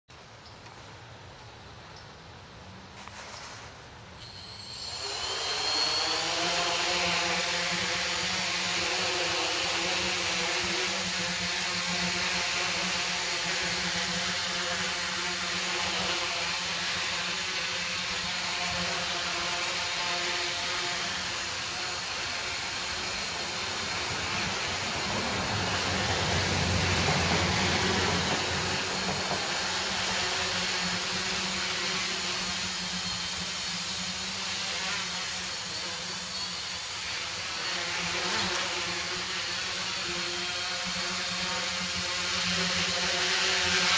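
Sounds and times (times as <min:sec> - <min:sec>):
drone motors buzzing whine: 0:04.2 - 0:43.9.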